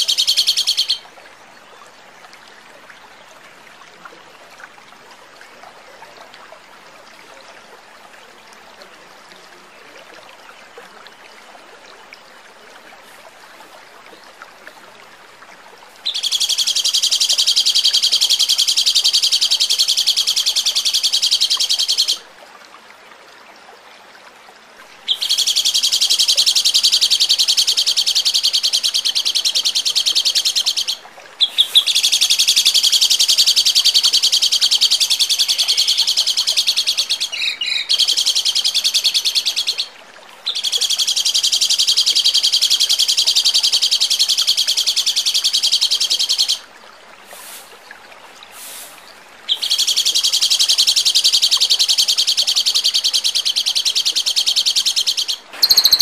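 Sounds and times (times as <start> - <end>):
songbird rapid high notes: 55.5 - 56.0.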